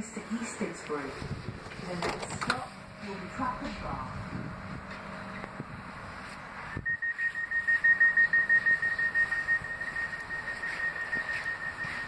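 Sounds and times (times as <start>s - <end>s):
rapid high-pitched door beeping: 6.8s - 12.0s.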